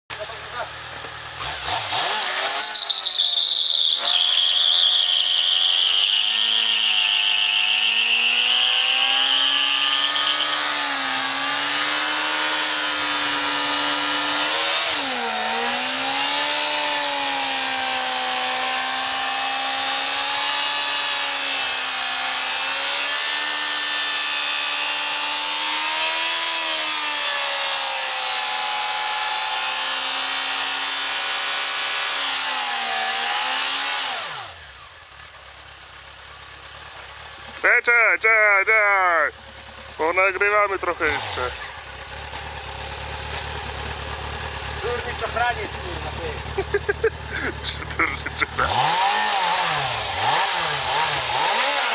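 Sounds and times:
motorcycle engine revving: 0.1s - 51.9s
tyre squeal: 1.8s - 10.6s.

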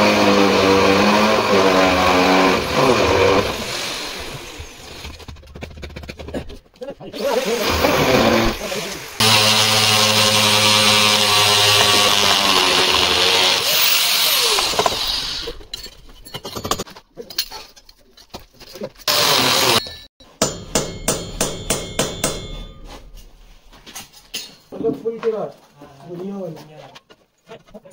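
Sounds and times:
power tool running: 0.0s - 5.0s, 7.2s - 15.6s, 19.1s - 19.9s.

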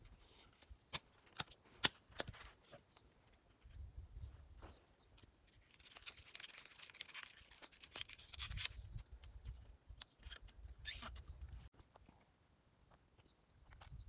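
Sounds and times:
bamboo strip scraping and rustling: 4.6s - 11.9s.

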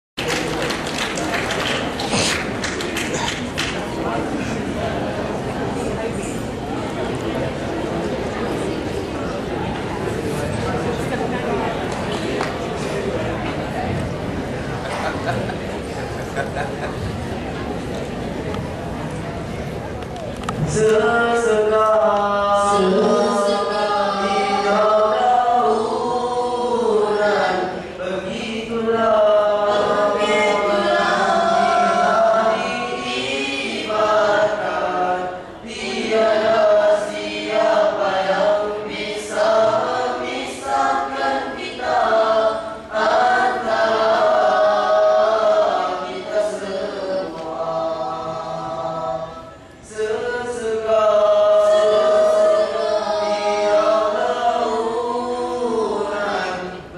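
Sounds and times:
boys singing into microphones: 20.5s - 56.9s.

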